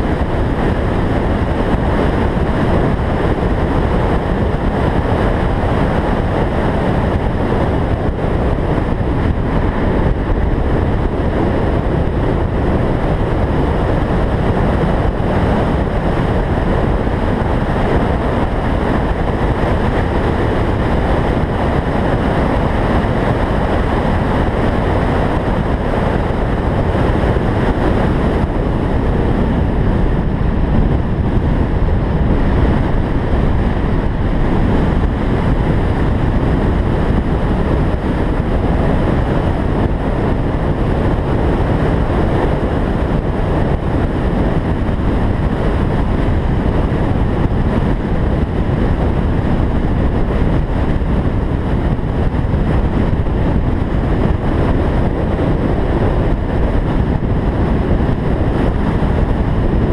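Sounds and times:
car running noise: 0.0s - 59.9s
wind buffeting microphone: 0.0s - 59.9s.

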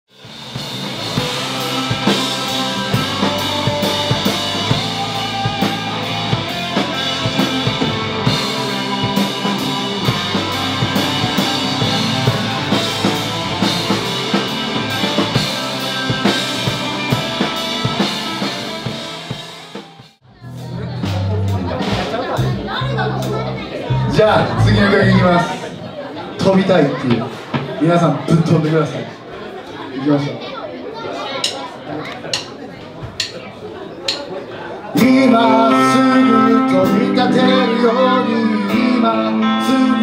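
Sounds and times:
live rock band playing: 0.1s - 26.0s, 34.9s - 40.0s.

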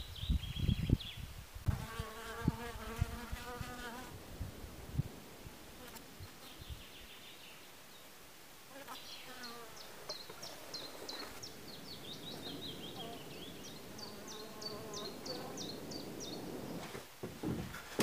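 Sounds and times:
flying insects buzzing: 1.6s - 6.9s, 8.6s - 17.1s.

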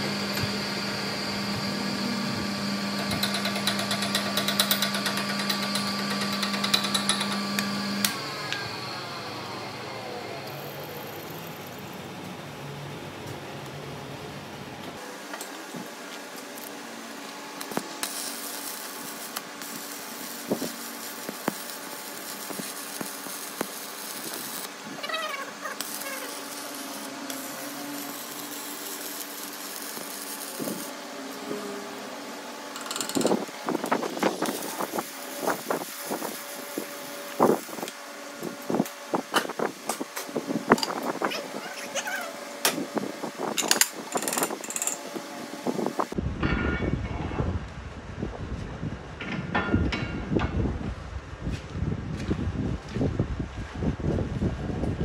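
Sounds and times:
arc welding crackling hiss: 0.0s - 8.7s, 10.4s - 12.1s, 15.0s - 46.2s.

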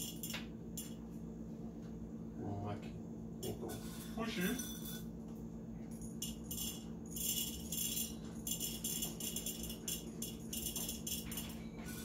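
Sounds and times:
coffee beans rattling in glass bottle: 6.2s - 11.6s.

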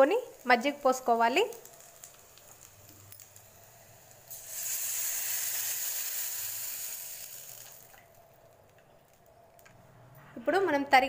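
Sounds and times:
liquid sizzling in hot oil: 0.0s - 8.4s.

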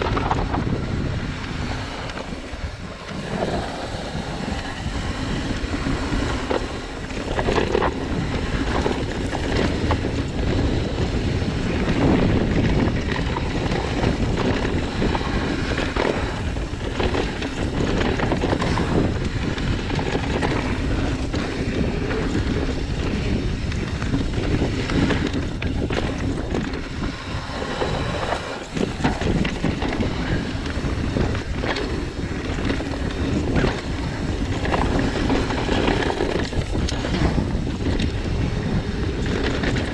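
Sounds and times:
bike knocks and rattles: 0.0s - 2.4s
bike tyre noise on dirt: 0.0s - 39.9s
wind buffeting microphone: 0.0s - 39.9s.

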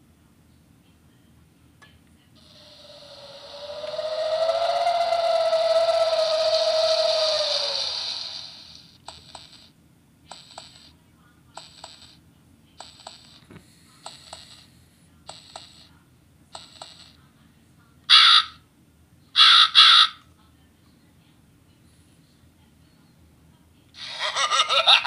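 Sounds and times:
crow caws from toy speaker: 18.1s - 18.6s, 19.4s - 20.2s.

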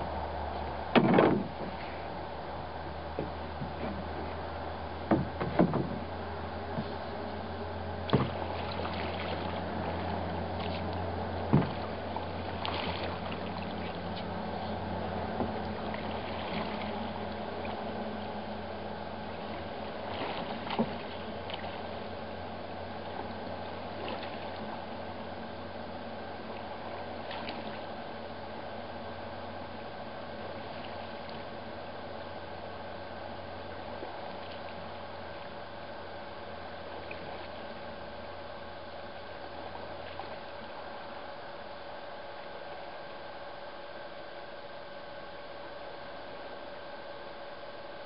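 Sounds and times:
paddle strokes in water: 0.6s - 4.4s, 8.1s - 25.4s, 26.2s - 28.2s, 30.4s - 31.7s, 33.7s - 35.6s, 36.8s - 38.0s, 39.0s - 41.2s
sharp knocks on canoe: 0.9s - 1.8s, 5.1s - 6.1s, 8.1s - 8.4s, 11.5s - 11.8s.

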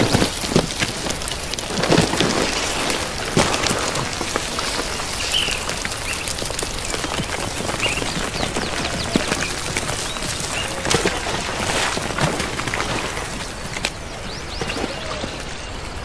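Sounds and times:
rain pattering: 0.0s - 16.0s
bird chirps: 5.1s - 10.8s.

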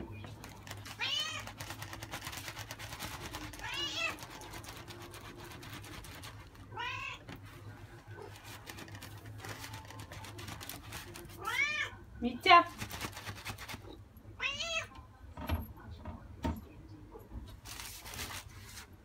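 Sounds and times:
cat meowing: 3.6s - 4.2s, 6.7s - 7.3s, 11.4s - 12.0s, 14.4s - 14.9s.

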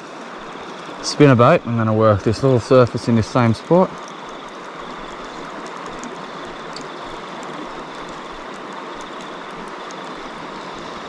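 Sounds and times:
river water over rocks: 0.0s - 11.0s.

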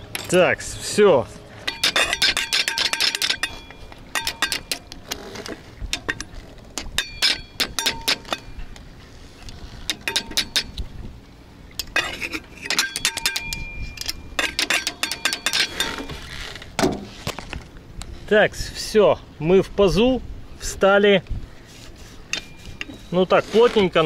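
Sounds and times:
metallic clicking and clinking: 0.0s - 0.5s, 1.6s - 5.2s, 5.9s - 8.8s, 9.4s - 10.8s, 11.8s - 16.2s.

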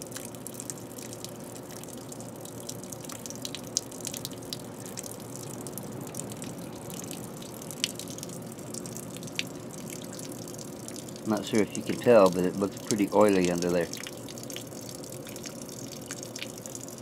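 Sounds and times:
drip splashes: 0.0s - 17.0s
water stream splashing on pavement: 0.0s - 17.0s.

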